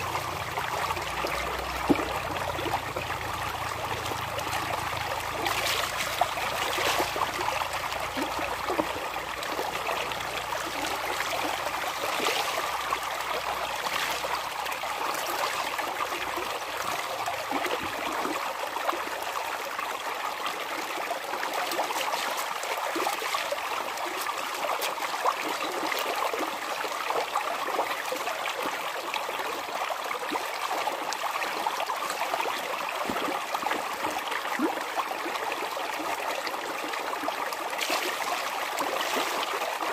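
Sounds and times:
water splashing and dripping: 0:00.0 - 0:18.3, 0:32.0 - 0:35.0, 0:37.1 - 0:39.9
running water: 0:00.0 - 0:39.9.

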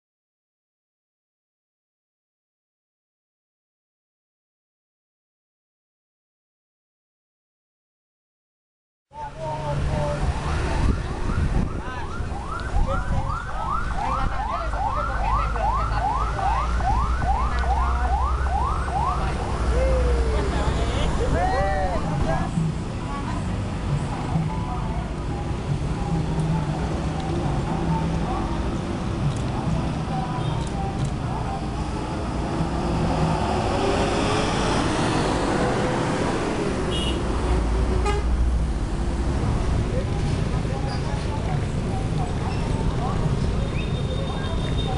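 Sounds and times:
passing traffic rumble: 0:09.1 - 0:44.9
electronic yelp siren: 0:10.5 - 0:19.4
buses driving past: 0:13.5 - 0:44.9.

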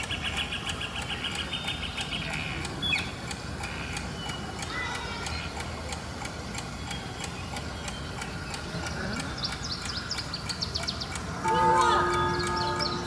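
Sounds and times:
clock ticking: 0:00.0 - 0:13.0
high chirps: 0:06.6 - 0:13.0
lobby murmur: 0:08.5 - 0:09.5.

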